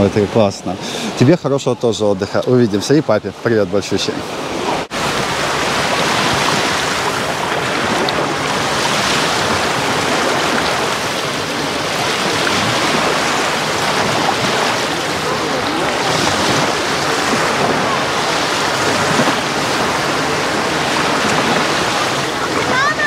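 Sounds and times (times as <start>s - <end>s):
small waves washing over sand: 0.0s - 23.0s.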